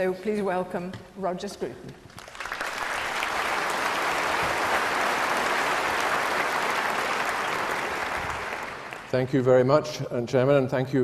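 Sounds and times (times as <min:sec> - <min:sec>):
audience applauding: 0:02.1 - 0:09.4.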